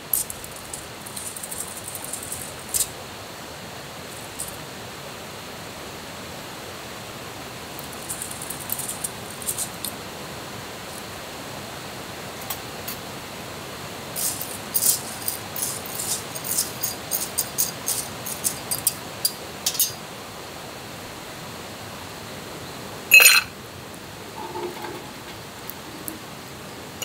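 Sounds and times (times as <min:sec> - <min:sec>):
steady hiss: 0:00.0 - 0:27.0
small sharp clicks and crackles: 0:00.1 - 0:02.9, 0:07.8 - 0:10.0
loud ringing clink: 0:23.1 - 0:23.5.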